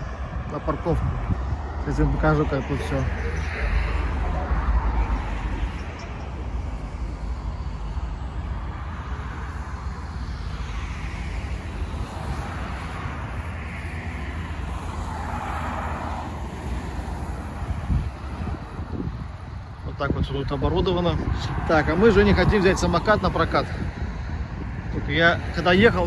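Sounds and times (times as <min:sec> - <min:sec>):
cars passing: 0:00.0 - 0:26.0
low traffic rumble: 0:00.0 - 0:26.0.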